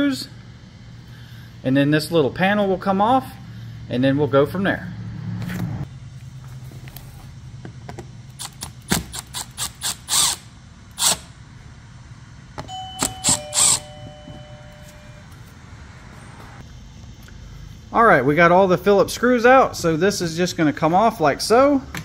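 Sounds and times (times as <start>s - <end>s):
short ringing tones: 12.7s - 15.5s.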